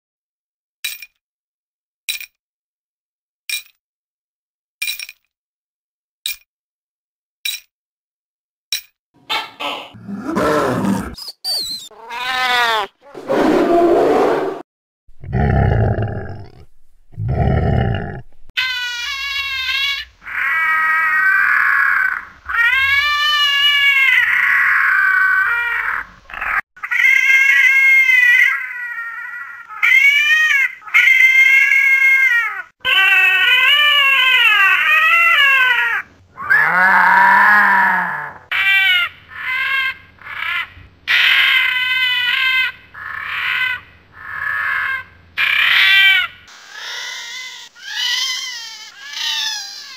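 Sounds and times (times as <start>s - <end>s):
cat meowing: 11.9s - 12.9s.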